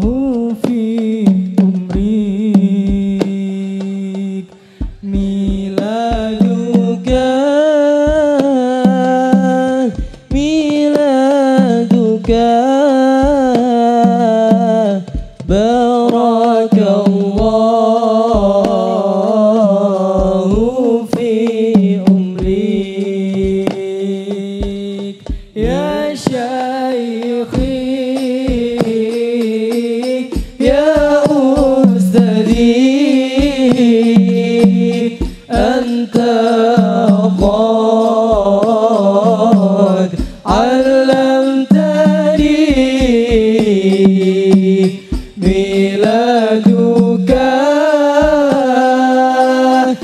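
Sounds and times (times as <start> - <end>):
frame drum strokes: 19.6 - 50.0
solo voice singing melismatic phrases: 25.6 - 26.7.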